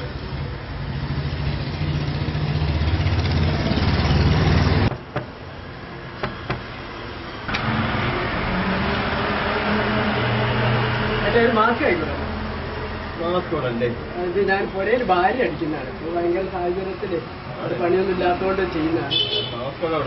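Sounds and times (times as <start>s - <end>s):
knocking on wooden door: 4.9s - 5.4s, 6.2s - 6.7s.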